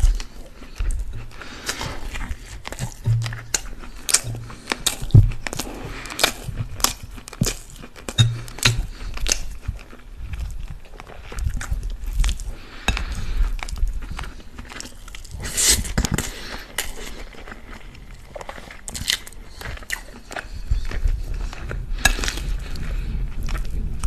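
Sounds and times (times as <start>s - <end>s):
chewing with wet mouth clicks: 0.0s - 24.0s
spoon clinking on glass plate: 8.2s - 8.8s.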